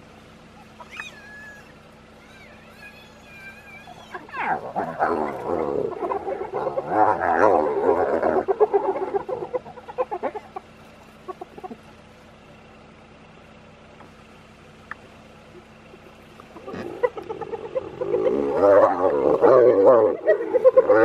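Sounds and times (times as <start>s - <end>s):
hyenas chattering calls: 0.5s - 12.1s, 14.9s - 21.0s.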